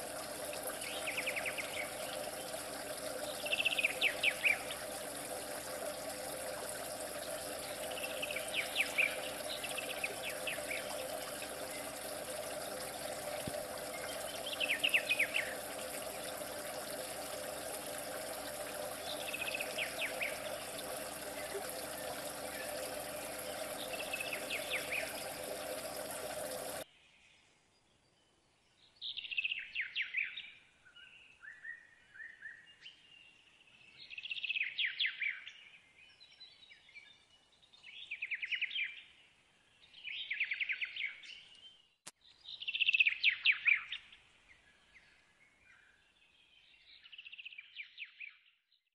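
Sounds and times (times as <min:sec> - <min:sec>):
running water: 0:00.0 - 0:26.8.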